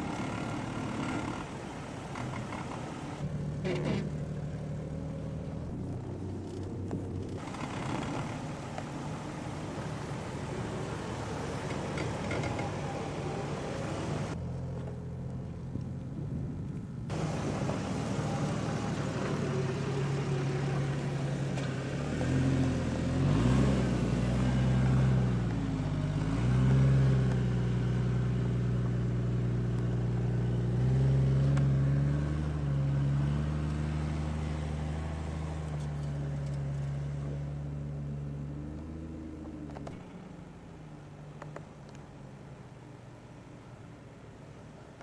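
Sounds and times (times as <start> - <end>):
car engine revving under load: 17.1 - 42.0.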